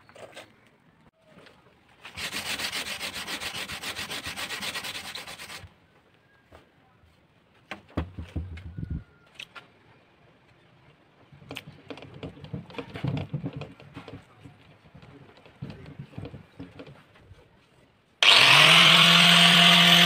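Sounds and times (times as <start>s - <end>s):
sanding disc rubbing on wood: 2.1s - 5.7s
low bumps and knocks: 7.9s - 8.9s.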